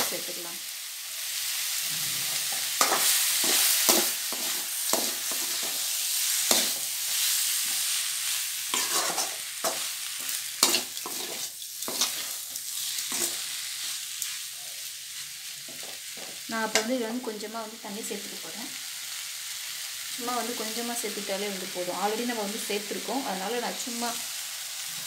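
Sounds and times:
meat sizzling in oil: 0:00.0 - 0:25.0
ladle scraping and knocking pan: 0:08.8 - 0:09.8.

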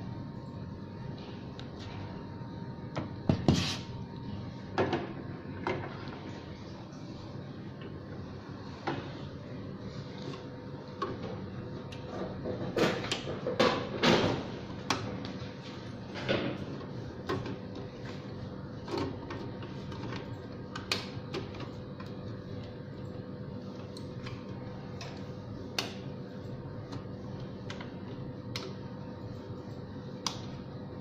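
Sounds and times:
steady hum: 0:00.0 - 0:31.0.

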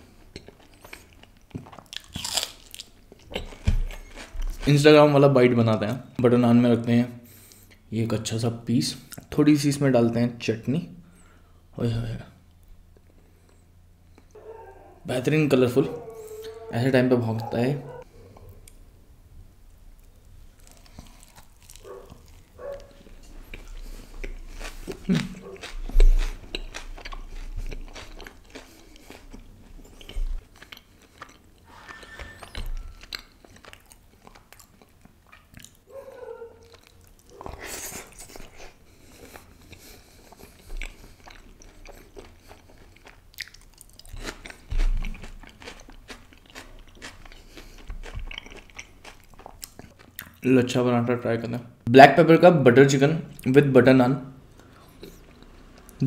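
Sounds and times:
wet chewing and crunching: 0:00.0 - 0:04.8, 0:20.0 - 0:50.5, 0:54.5 - 0:56.0.

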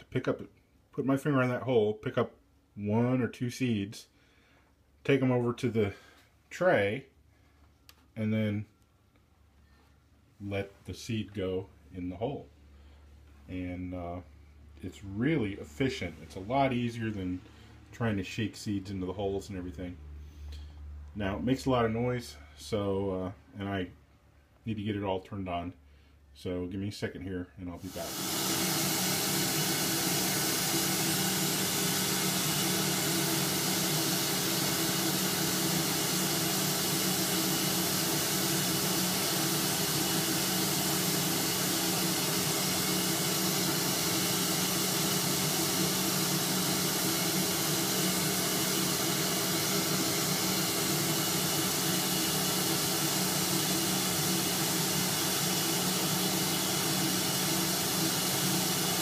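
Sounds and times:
shop vacuum running: 0:27.8 - 0:59.0.

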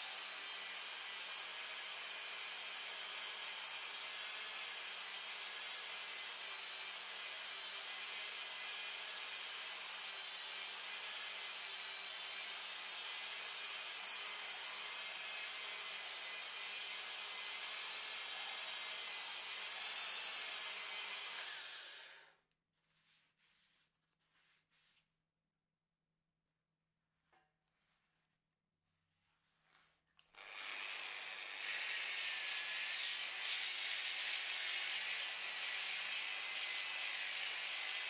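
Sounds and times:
belt sander on wood: 0:04.7 - 0:22.3, 0:30.3 - 0:38.0.

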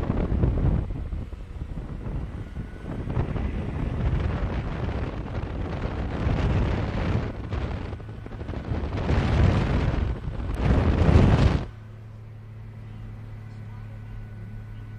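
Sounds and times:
wind buffeting microphone: 0:00.0 - 0:11.9.

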